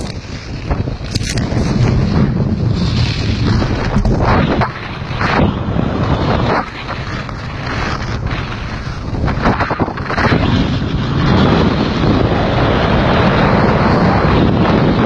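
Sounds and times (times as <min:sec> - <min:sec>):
snow skates scraping snow: 0:00.0 - 0:15.0
wind buffeting microphone: 0:00.0 - 0:15.0.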